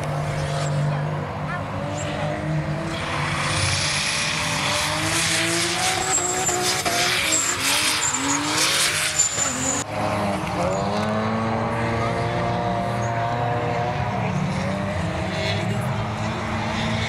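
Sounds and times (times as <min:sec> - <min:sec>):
car engine revving: 0:00.0 - 0:17.0
car engines running steadily: 0:00.0 - 0:17.0
tyres screeching: 0:01.8 - 0:09.8.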